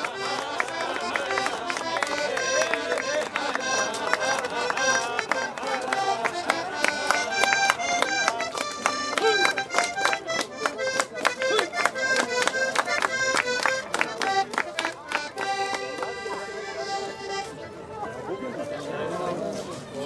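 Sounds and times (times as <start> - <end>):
accordion dance tune: 0.0 - 18.0.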